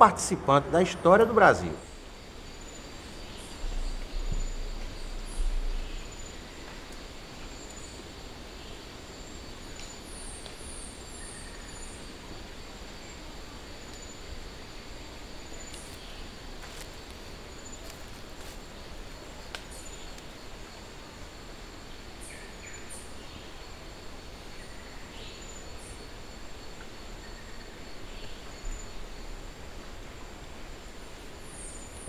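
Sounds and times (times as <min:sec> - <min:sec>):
insect trill: 0:00.0 - 0:32.0
faint clicks: 0:19.5 - 0:20.3.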